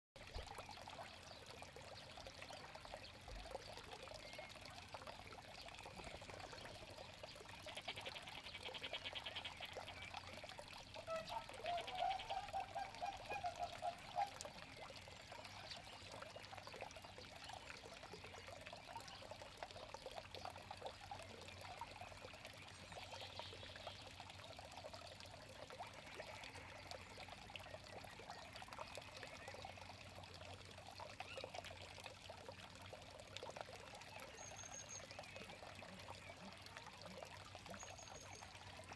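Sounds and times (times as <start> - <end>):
water trickling into pond: 0.2 - 38.9.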